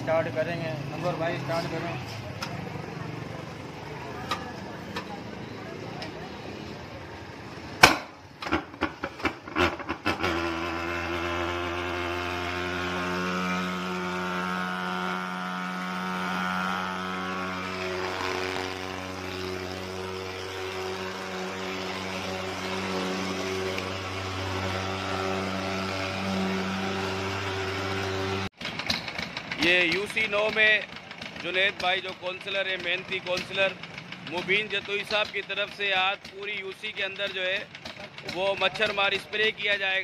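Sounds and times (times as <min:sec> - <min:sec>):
fogging machine sharp pops: 0:07.8 - 0:10.2
fogging machine buzzing drone: 0:09.5 - 0:28.5.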